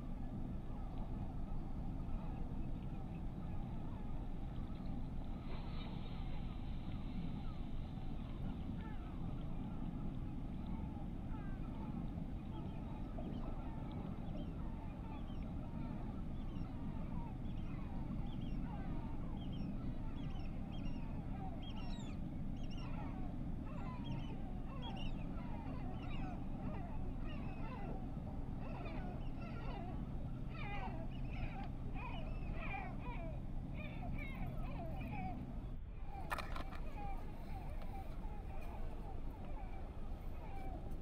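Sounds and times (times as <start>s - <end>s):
steady low rumble: 0.0s - 41.0s
birds calling: 23.8s - 41.0s.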